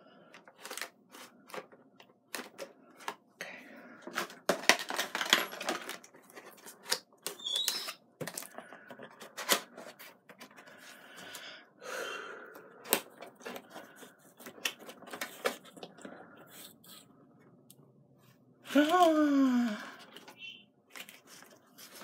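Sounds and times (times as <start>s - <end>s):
packaging scraping and rustling: 0.5s - 1.7s, 4.1s - 11.0s, 13.0s - 17.0s.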